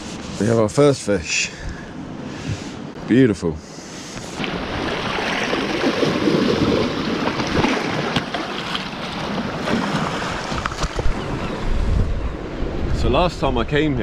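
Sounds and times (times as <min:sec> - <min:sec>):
sea water sloshing against rocks: 0:04.3 - 0:11.7
wind on microphone: 0:09.6 - 0:14.0.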